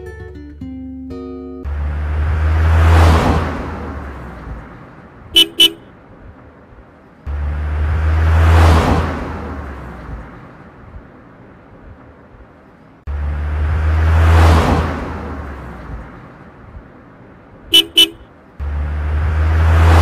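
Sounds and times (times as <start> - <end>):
car driving by: 1.7 - 5.8, 7.2 - 11.7, 13.0 - 20.0
car horn toots: 5.3 - 5.9, 17.7 - 18.3.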